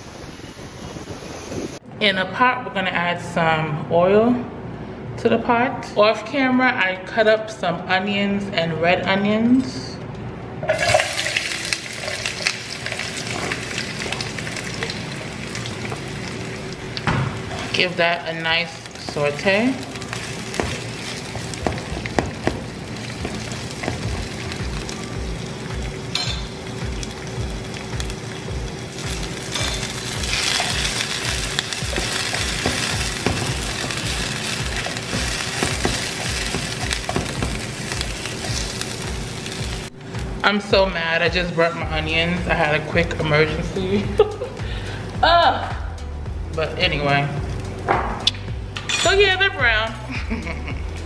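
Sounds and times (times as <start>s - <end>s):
onions sizzling in hot oil: 10.8s - 40.0s.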